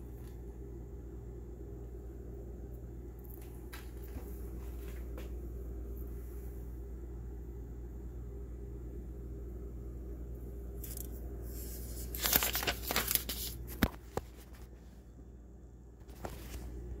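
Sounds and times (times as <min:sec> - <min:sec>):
steady low hum: 0:00.0 - 0:17.0
rustling and scraping: 0:16.0 - 0:16.8.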